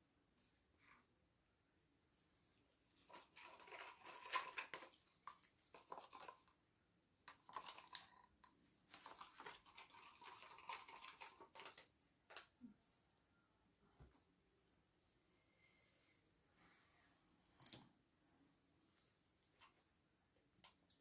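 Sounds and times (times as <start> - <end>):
stick scraping plastic cup: 3.0 - 6.6, 7.3 - 11.9.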